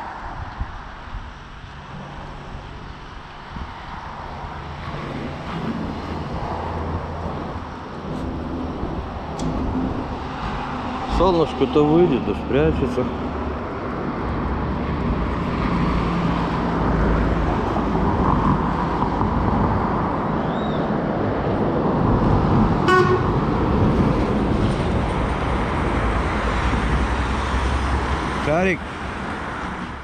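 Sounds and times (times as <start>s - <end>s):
vehicles passing: 0.0s - 30.0s
short car horn toot: 22.9s - 23.3s.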